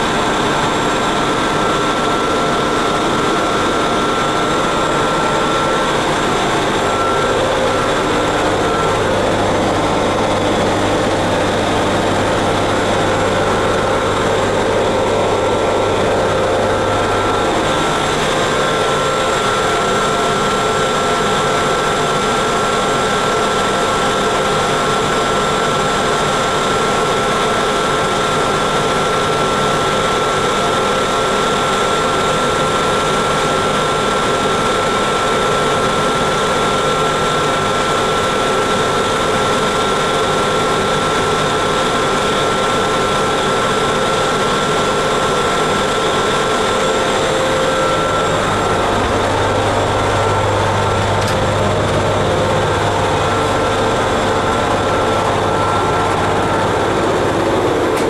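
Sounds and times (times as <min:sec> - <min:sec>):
mechanical whir with high whine: 0:00.0 - 0:58.0
low hum: 0:00.6 - 0:20.2, 0:47.4 - 0:58.0.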